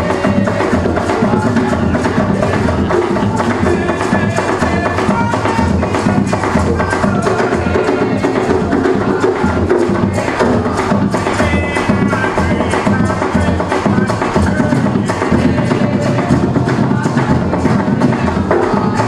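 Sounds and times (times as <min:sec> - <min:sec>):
hand drums and percussion: 0:00.0 - 0:19.0.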